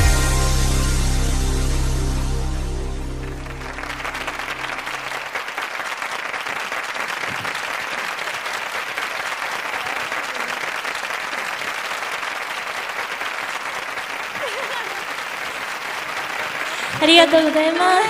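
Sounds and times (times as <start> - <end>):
low song notes: 0.0 - 5.2
audience applauding: 3.2 - 18.0.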